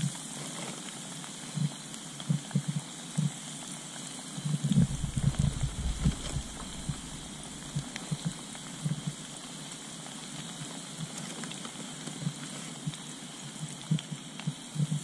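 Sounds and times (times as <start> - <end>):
fish deep-frying in hot oil: 0.0 - 15.0
soft low thumps: 4.7 - 8.4.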